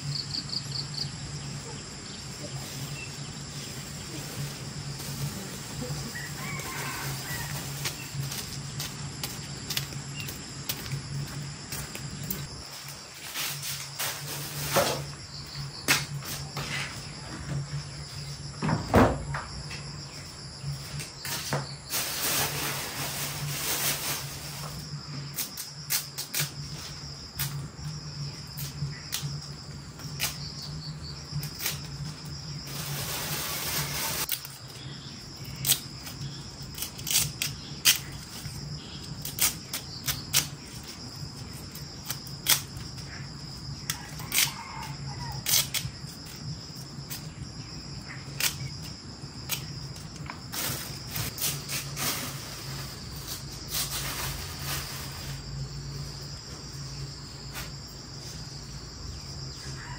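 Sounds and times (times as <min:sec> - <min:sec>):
insects chirring: 0:00.0 - 0:59.9
rustling noise: 0:02.5 - 0:18.5, 0:20.2 - 0:28.9, 0:31.5 - 0:34.8, 0:49.4 - 0:58.6.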